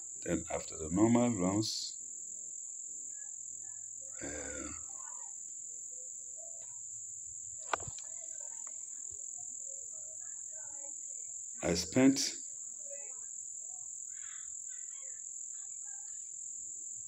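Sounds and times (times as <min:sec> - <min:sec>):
crickets trilling: 0:00.0 - 0:17.0
man's voice murmuring: 0:00.3 - 0:01.9, 0:04.2 - 0:04.8, 0:11.6 - 0:12.4.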